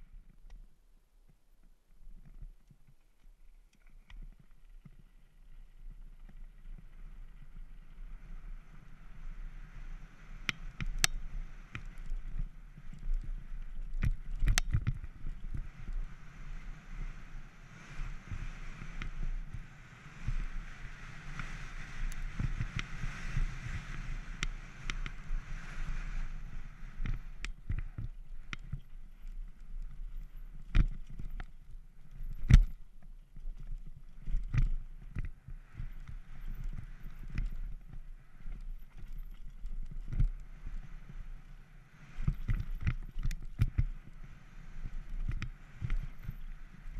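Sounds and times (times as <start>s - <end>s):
bike tyres rushing on dirt: 4.3s - 46.9s
bike knocking and rattling: 10.6s - 16.0s, 27.0s - 40.6s, 42.2s - 44.2s.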